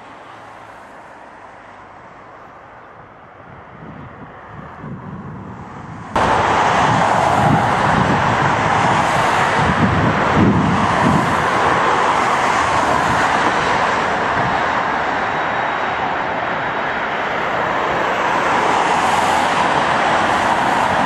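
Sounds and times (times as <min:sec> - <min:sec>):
jet engines running: 0:05.4 - 0:21.0.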